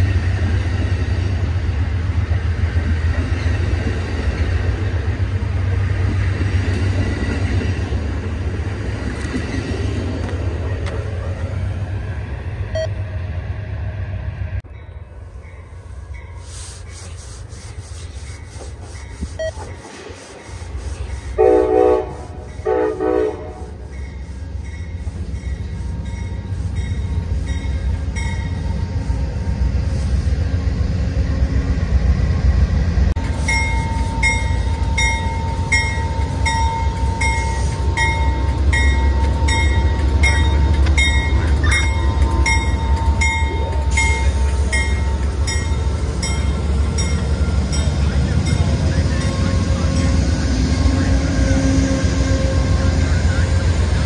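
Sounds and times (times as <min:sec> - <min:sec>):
diesel locomotive rumble: 0:00.0 - 0:54.0
train horn blasts: 0:21.4 - 0:23.9, 0:49.2 - 0:53.4.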